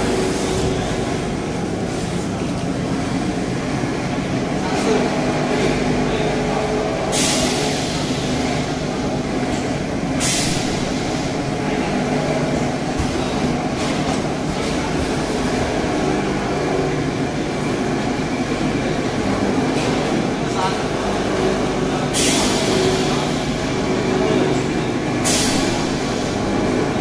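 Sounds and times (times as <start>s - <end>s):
packing machine drone: 0.0s - 27.0s.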